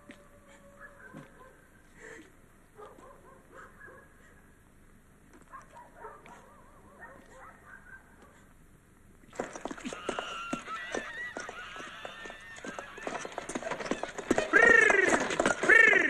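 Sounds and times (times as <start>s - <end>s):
geese honking loudly: 10.0s - 16.0s.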